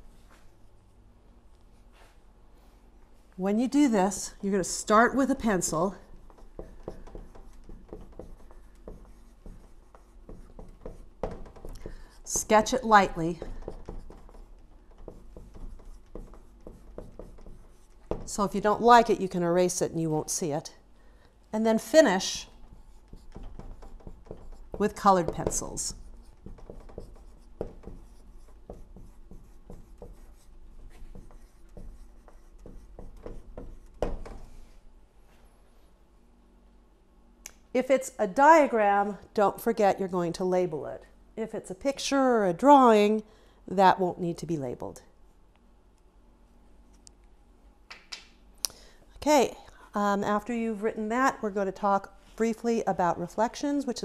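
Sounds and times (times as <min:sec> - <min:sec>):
marker writing on whiteboard: 0:05.2 - 0:19.2, 0:22.3 - 0:34.8.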